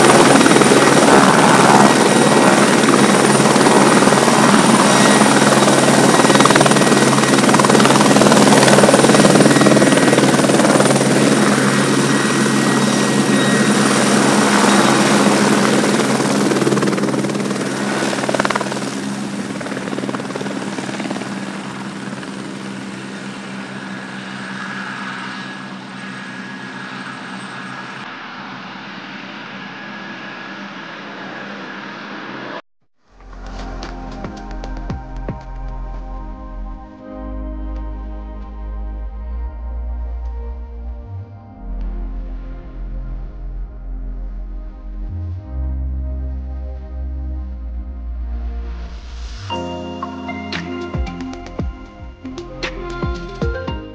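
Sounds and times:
helicopter rotor and engine: 0.0s - 32.6s.

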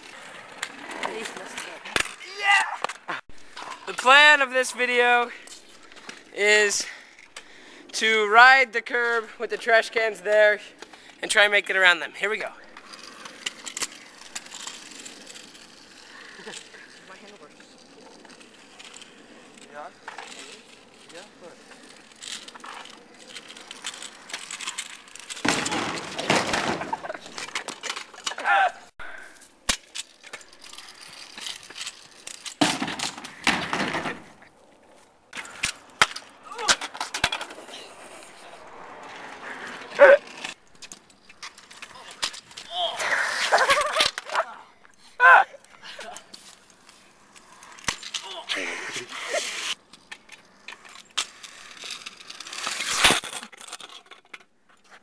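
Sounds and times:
scooter rolling over asphalt: 0.0s - 7.9s, 8.8s - 28.6s, 29.4s - 44.9s, 45.6s - 55.0s
crash into plastic bins: 25.4s - 27.1s.

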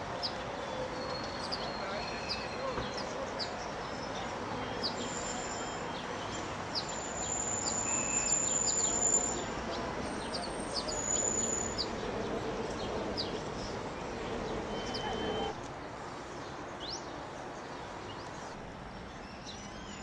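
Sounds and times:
thin high whistle: 7.0s - 9.5s.

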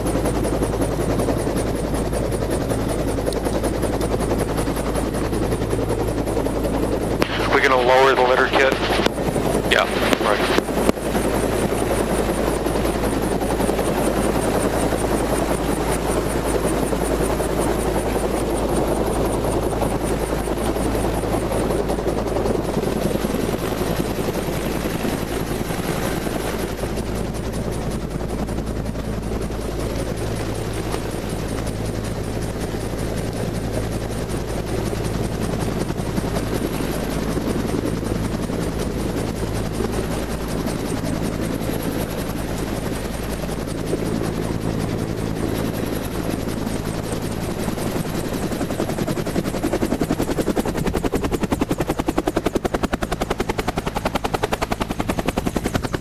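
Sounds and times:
helicopter rotors droning: 0.0s - 56.0s.

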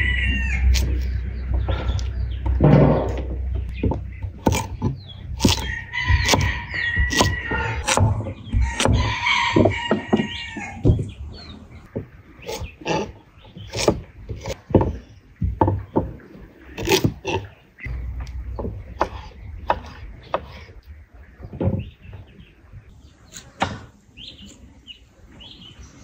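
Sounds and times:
rooster crowing: 0.0s - 0.7s, 5.6s - 7.8s, 8.6s - 10.8s
knife chopping on wooden board: 5.4s - 9.0s.

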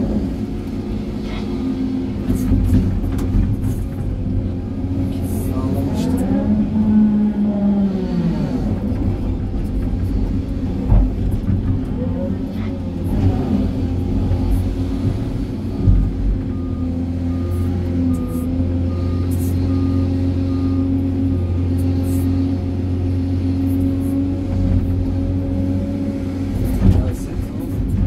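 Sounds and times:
excavator diesel engine: 0.0s - 28.0s
faint reversing alarm beeping: 16.0s - 22.3s.

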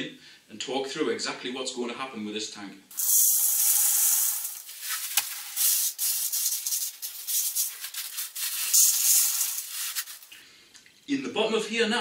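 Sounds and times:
gravel pouring hissing rattle: 2.9s - 10.4s.

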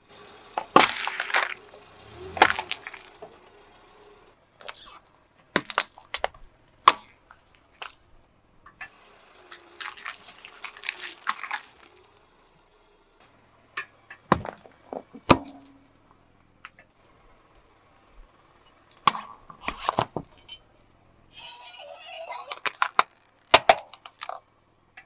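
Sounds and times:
crackling under tyre: 0.0s - 25.0s
loud crunches: 0.6s - 1.6s, 2.2s - 3.2s, 4.6s - 8.0s, 9.5s - 12.3s, 22.5s - 24.4s
plastic jar cracking under tyre: 0.6s - 1.6s, 2.4s - 3.2s, 4.6s - 8.0s, 9.5s - 12.3s, 18.9s - 20.4s, 22.5s - 24.4s.

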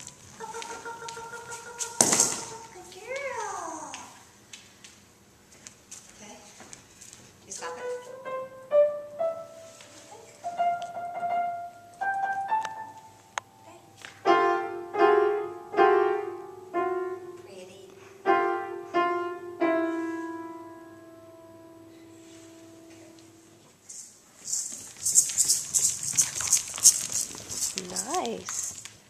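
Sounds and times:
piano notes: 7.6s - 23.8s.

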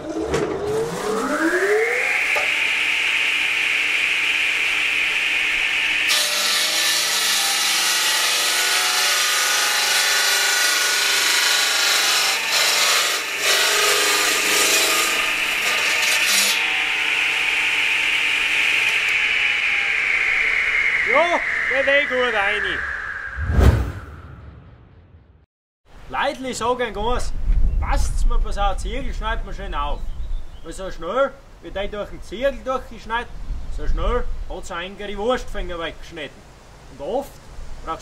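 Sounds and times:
table saw whining: 0.0s - 23.4s
saw blade grinding through brick: 6.0s - 19.6s.

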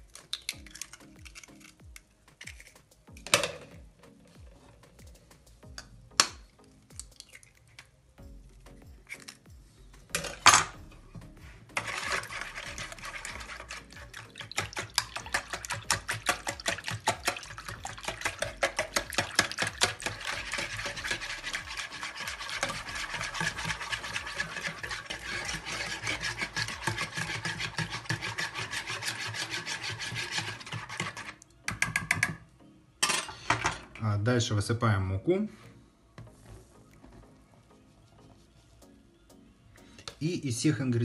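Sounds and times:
wire whisk beating in plastic bowl: 11.8s - 32.3s.

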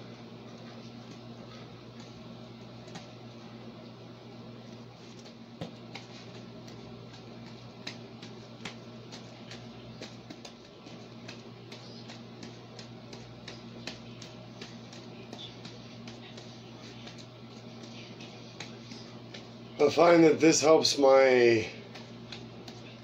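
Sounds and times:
steady low hum: 0.0s - 23.0s
juggling balls caught by hand: 5.2s - 20.8s, 21.4s - 23.0s.

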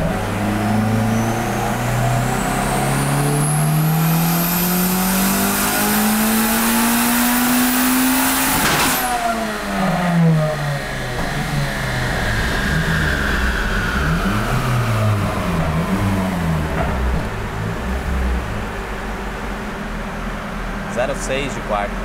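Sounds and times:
car engine revving at full throttle: 0.0s - 22.0s
turbo whine: 7.4s - 22.0s.

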